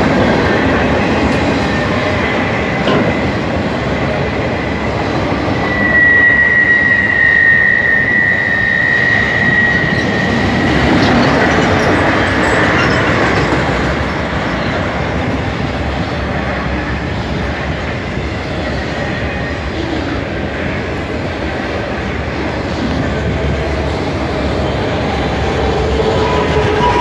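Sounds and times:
freight train wheels on rails: 0.0 - 27.0
high wheel squeal: 5.5 - 14.8, 24.5 - 27.0.

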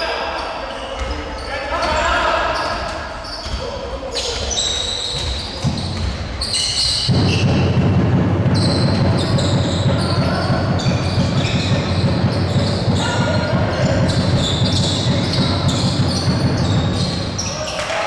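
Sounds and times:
sneakers squeaking on floor: 0.3 - 18.0
basketball dribbling: 7.1 - 17.5.

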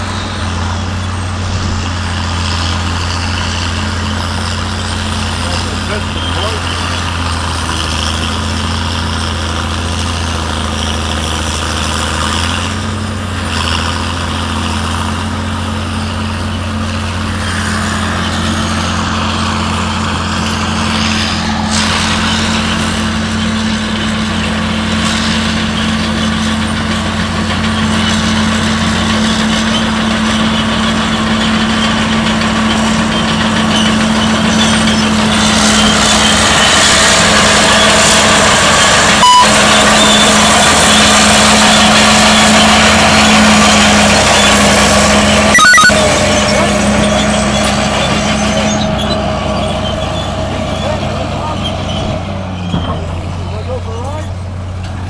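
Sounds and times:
crawler tractor driving: 0.0 - 55.0
diesel engines droning: 0.0 - 55.0.

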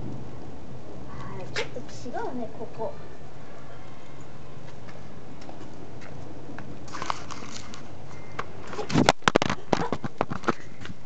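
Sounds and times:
camera handling rustle: 6.9 - 10.7
camera knocking and clattering: 9.0 - 10.6.

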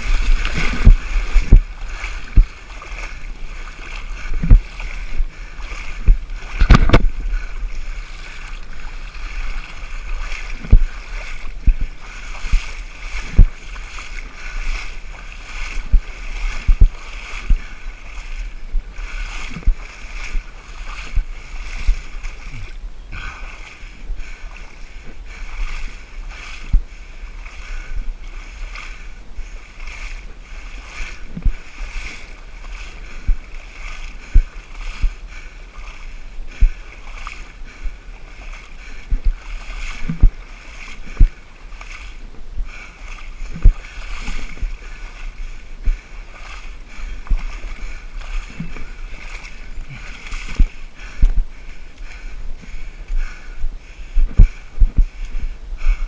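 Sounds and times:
low thuds of steps: 0.0 - 14.1, 15.6 - 17.8, 26.6 - 26.9, 31.2 - 31.6, 33.1 - 33.4, 39.1 - 40.4, 41.0 - 41.4, 43.5 - 44.8, 45.7 - 49.1, 49.8 - 56.0
water sloshing and splashing: 0.0 - 56.0.

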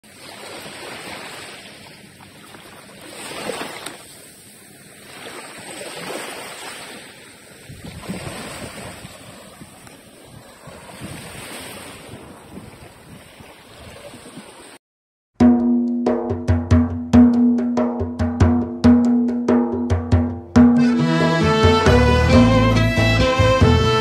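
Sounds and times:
small waves washing onto sand: 0.0 - 14.8
wind rumbling on microphone: 7.6 - 14.5.

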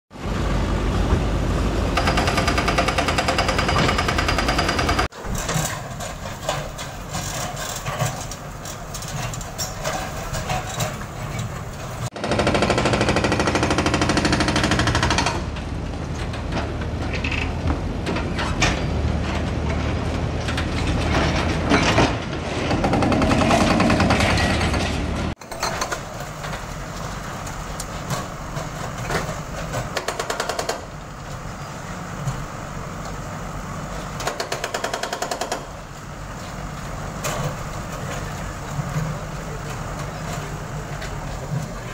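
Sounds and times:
diesel engines droning: 0.2 - 7.1
demolition clatter and knocks: 2.0 - 30.7.

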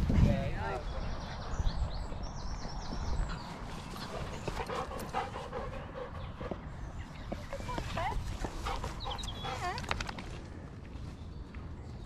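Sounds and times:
low wind rumble on microphone: 0.0 - 12.0
dog panting: 3.2 - 10.1.

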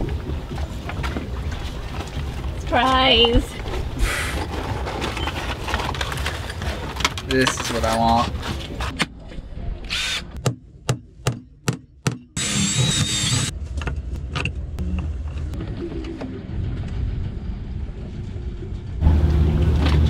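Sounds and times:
cordless drill whining: 12.4 - 13.5
low rumble: 13.5 - 20.0.

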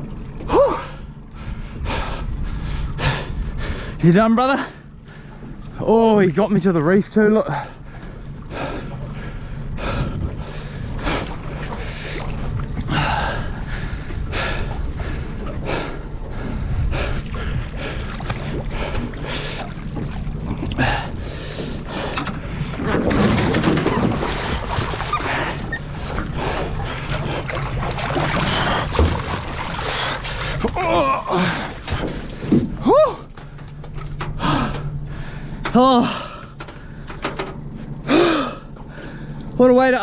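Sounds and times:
outboard motor idling: 0.0 - 40.0
water slapping at hull: 0.0 - 40.0
fish thrashing in water: 17.2 - 34.2.

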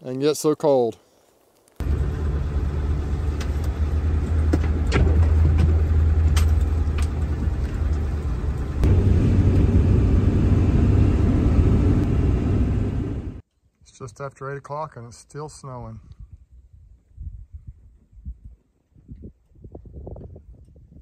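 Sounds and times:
truck engine and tyres rumbling: 1.8 - 13.4.

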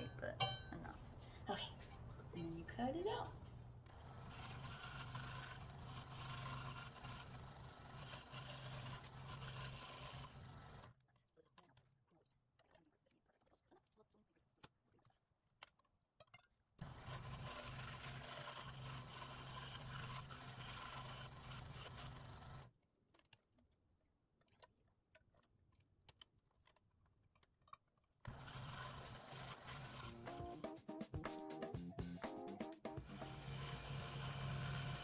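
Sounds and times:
scroll saw cutting wood: 3.0 - 11.0, 16.8 - 23.3, 28.2 - 31.4, 32.6 - 35.0
music: 29.7 - 34.0.

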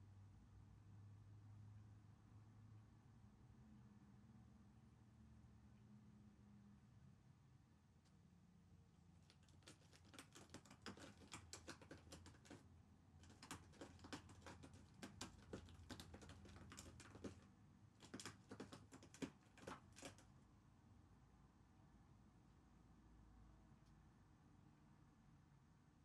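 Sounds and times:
cat chewing with crisp crunching: 9.2 - 20.4.

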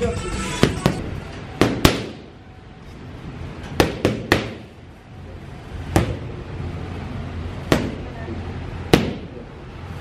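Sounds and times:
boxing gloves hitting mitts: 0.6 - 2.3, 3.7 - 4.7, 5.9 - 6.3, 7.6 - 8.1, 8.9 - 9.3.

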